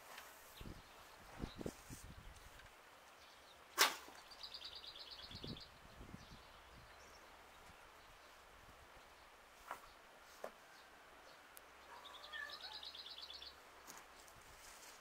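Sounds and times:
sharp crack: 0:03.7 - 0:04.2.

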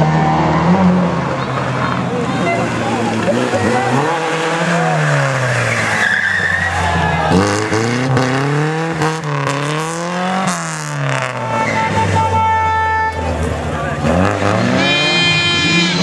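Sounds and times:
car engine revving hard: 0:00.0 - 0:12.2, 0:13.3 - 0:16.0
tyres squealing: 0:02.1 - 0:09.6.

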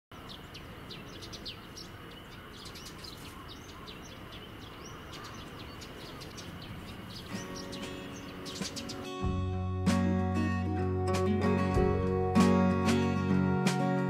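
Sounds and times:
small birds chirping: 0:00.1 - 0:09.6
outdoor background hiss: 0:00.1 - 0:14.0.

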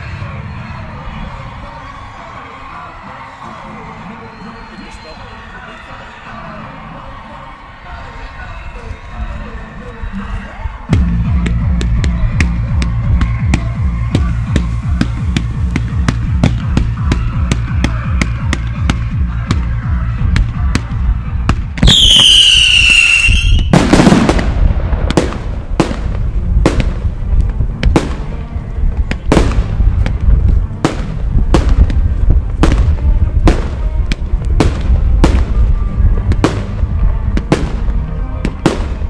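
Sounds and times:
music with steady beat: 0:10.9 - 0:22.0
firework whistle: 0:21.8 - 0:24.3
firework burst: 0:21.8 - 0:27.1.

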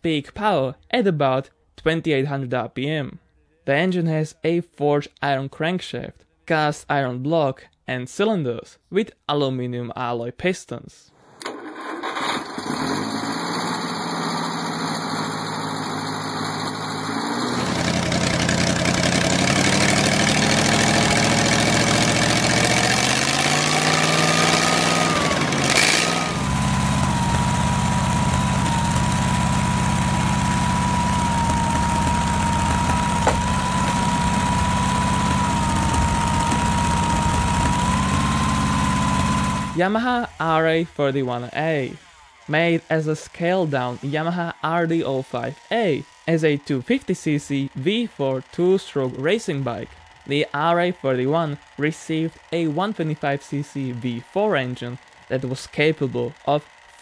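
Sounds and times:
gasoline engine running: 0:11.4 - 0:41.9
steady high whine: 0:19.8 - 0:42.0.

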